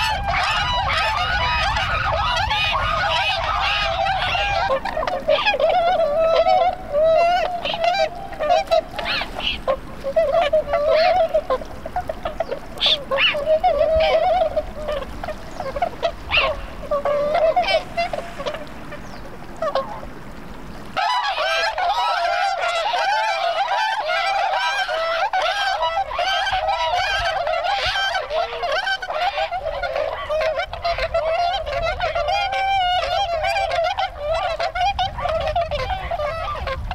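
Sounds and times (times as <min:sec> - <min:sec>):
swans honking: 0:00.0 - 0:36.9.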